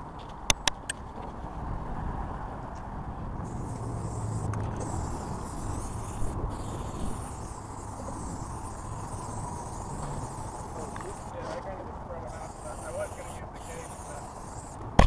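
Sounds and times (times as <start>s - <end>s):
aerosol spray can hissing: 3.4s - 11.3s, 12.3s - 14.8s.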